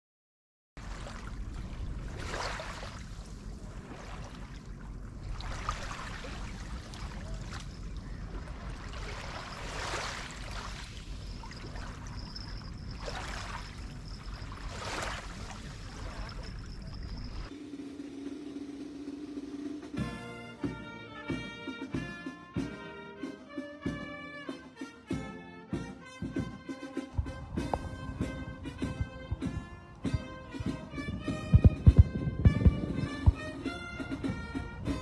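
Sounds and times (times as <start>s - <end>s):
steady low rumble: 0.8s - 9.5s, 15.3s - 20.2s, 27.1s - 35.0s
sea water washing in surges: 0.8s - 19.9s.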